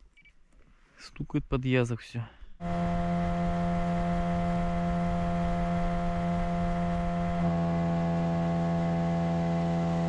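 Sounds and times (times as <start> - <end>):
boat motor droning: 2.6 - 10.0.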